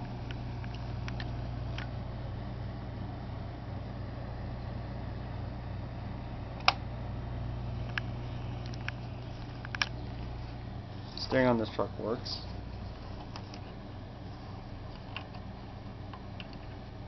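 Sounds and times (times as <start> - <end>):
low hum: 0.0 - 17.0
handling clicks: 0.2 - 1.9, 7.8 - 10.4, 14.9 - 15.5, 16.1 - 16.9.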